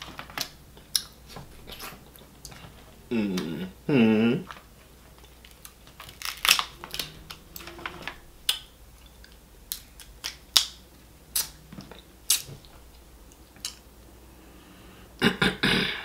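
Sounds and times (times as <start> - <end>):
crab shell cracking and snapping: 5.2 - 6.7, 8.5 - 10.8.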